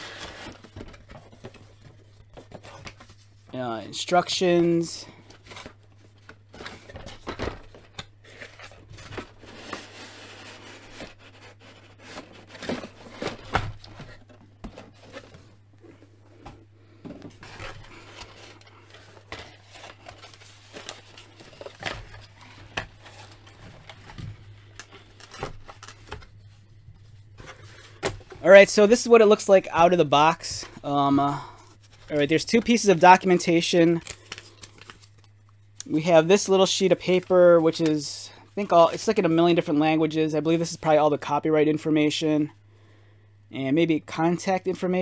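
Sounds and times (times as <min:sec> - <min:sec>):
packaging paper rustling and scraping: 0:00.0 - 0:03.6, 0:04.7 - 0:16.6, 0:17.2 - 0:35.2
steady low hum: 0:00.0 - 0:44.9.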